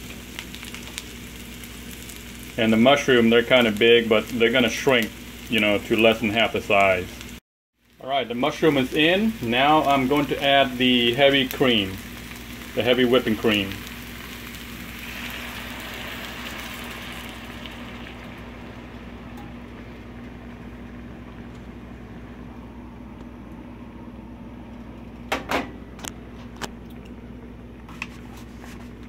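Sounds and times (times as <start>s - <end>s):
vegetables sizzling in a frying pan: 0.0s - 21.5s
low hum: 13.8s - 27.9s
cream pouring: 14.8s - 20.1s.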